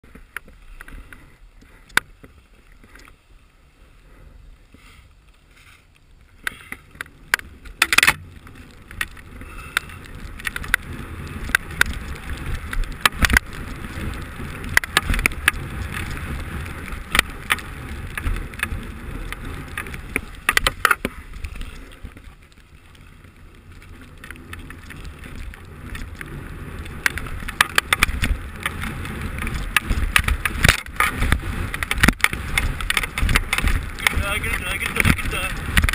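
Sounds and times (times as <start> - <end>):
skis running over snow: 0.0 - 35.9
sharp clicks and knocks: 6.4 - 13.6, 14.6 - 16.1, 17.0 - 21.2, 27.0 - 35.9.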